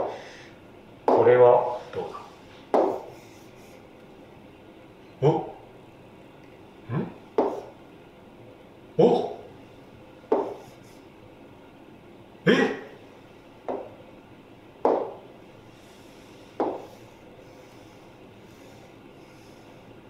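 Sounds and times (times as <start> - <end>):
man's clipped vocal sounds: 5.2 - 5.6, 9.0 - 9.4.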